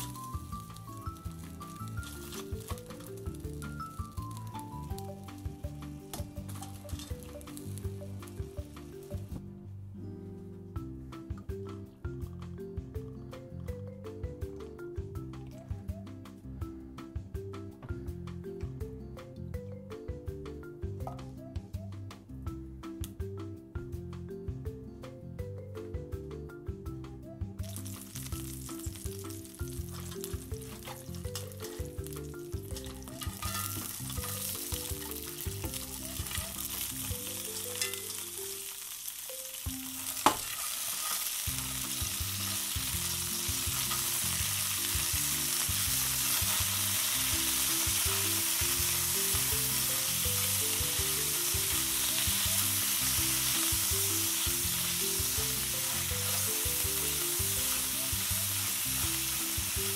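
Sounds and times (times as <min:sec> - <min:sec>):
metal tongs stirring: 0:00.0 - 0:05.2, 0:06.0 - 0:07.8, 0:27.8 - 0:39.2, 0:39.8 - 0:44.4
oil sizzling in a skillet: 0:00.0 - 0:09.3, 0:27.6 - 0:59.9.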